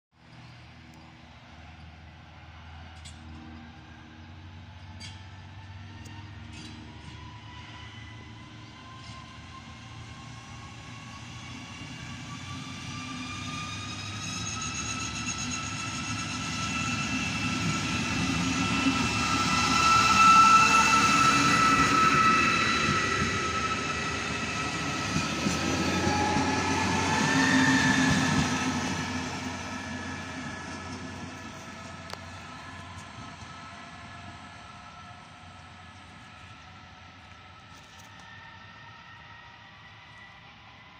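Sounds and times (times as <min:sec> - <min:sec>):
railcar engine whine: 0:00.1 - 0:40.9.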